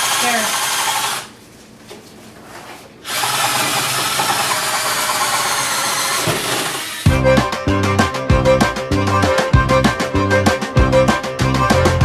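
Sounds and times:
cordless drill driving bolts: 3.1s - 7.1s.

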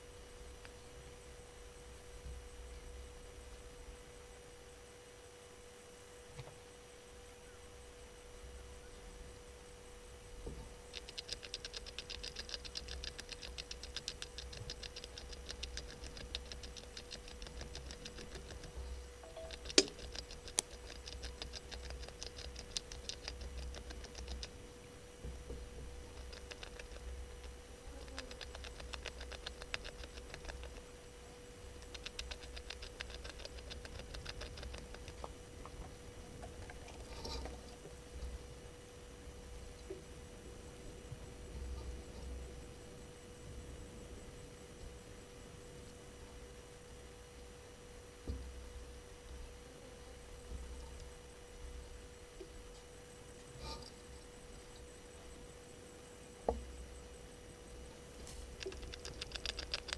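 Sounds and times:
faint steady hum: 0.0s - 59.9s
rapid high-pitched ticking: 10.8s - 24.6s, 26.0s - 30.9s, 31.7s - 35.3s, 58.5s - 59.9s
sharp clicks: 10.9s - 24.6s, 26.0s - 30.9s, 31.8s - 35.8s, 58.5s - 59.9s.

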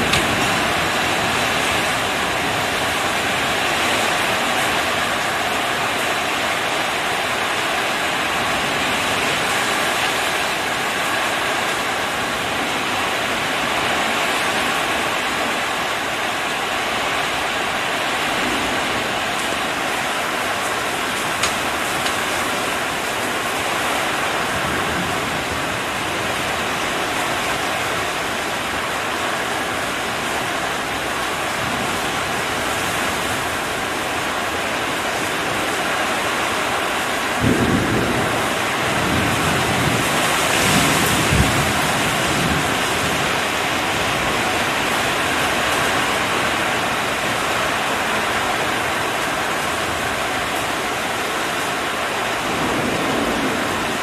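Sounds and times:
torrential rain pouring: 0.0s - 54.0s
thunder rumbling: 37.3s - 44.7s, 52.4s - 54.0s
thunder crack: 37.4s - 42.6s.

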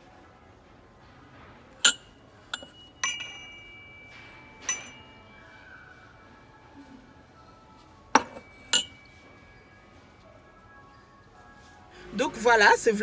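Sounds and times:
metal candle holders clinking: 1.8s - 5.2s, 8.2s - 9.2s.

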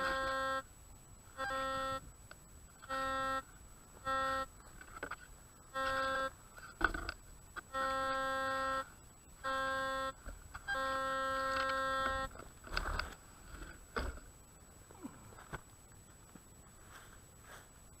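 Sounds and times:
metal detector buzzy tone: 0.0s - 0.7s, 1.3s - 2.1s, 2.7s - 13.2s.

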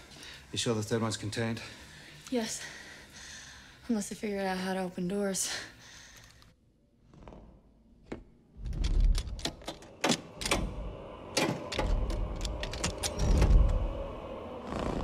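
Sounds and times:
door handle clicking and rattling: 8.6s - 10.8s
deep rumble: 10.3s - 15.0s.

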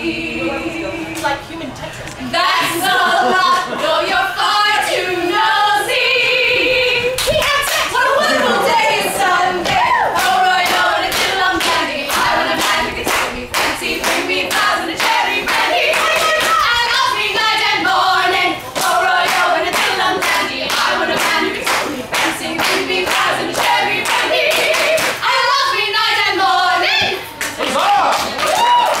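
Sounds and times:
women singing a cappella: 0.0s - 27.4s
hand claps: 18.8s - 25.2s.

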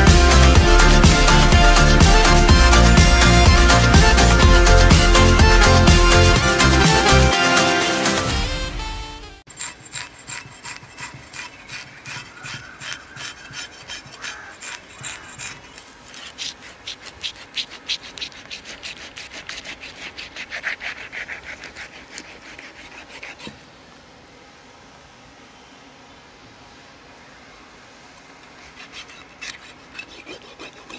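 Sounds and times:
knife sawing through fish: 9.5s - 23.6s, 28.4s - 30.9s.

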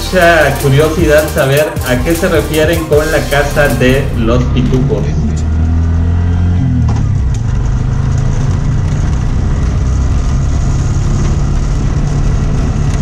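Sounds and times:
motor tricycle engine running: 0.0s - 13.0s
road noise: 0.0s - 13.0s.

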